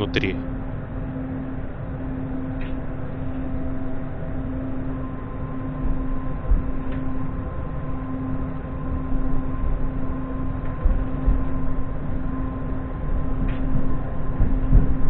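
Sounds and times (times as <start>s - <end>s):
electrical hum: 0.0s - 15.0s
traction equipment whine: 0.0s - 15.0s.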